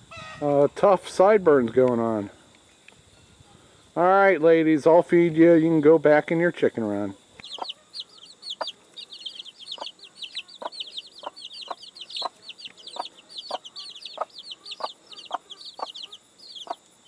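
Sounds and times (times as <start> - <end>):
chicks peeping: 7.3 - 17.0
hen clucking: 7.4 - 17.0.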